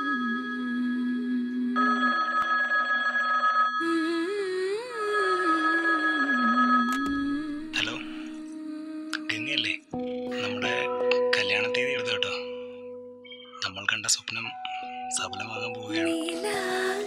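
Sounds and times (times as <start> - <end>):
telephone bell ringing: 1.7 - 4.3, 5.4 - 7.0
slow wandering melody: 3.8 - 13.7, 14.4 - 17.0.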